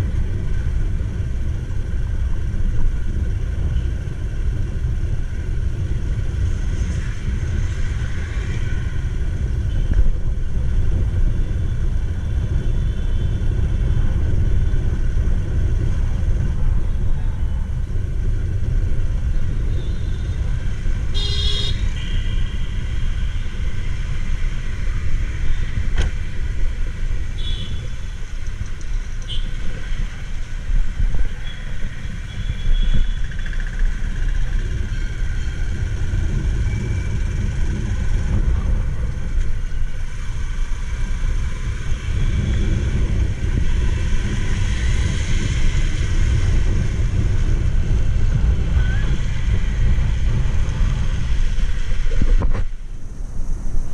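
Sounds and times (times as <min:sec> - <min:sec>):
vehicle horn: 0:21.1 - 0:22.6, 0:27.4 - 0:27.9.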